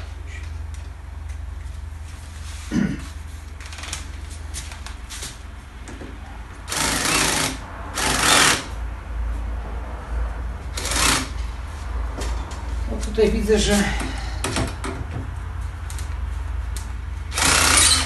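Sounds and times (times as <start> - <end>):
cordless screwdriver running: 17.3 - 18.0.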